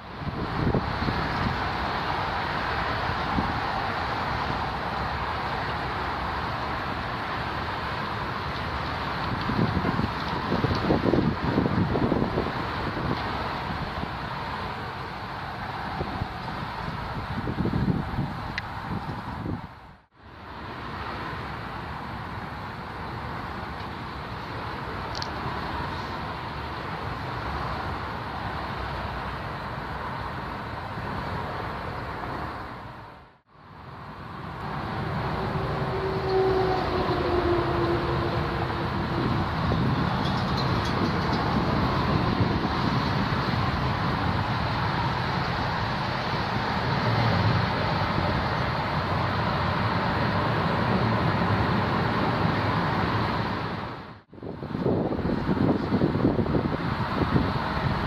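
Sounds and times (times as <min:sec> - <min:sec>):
turboprop plane landing: 0:00.0 - 0:20.0, 0:34.1 - 0:58.0
aircraft engine noise: 0:00.0 - 0:58.0.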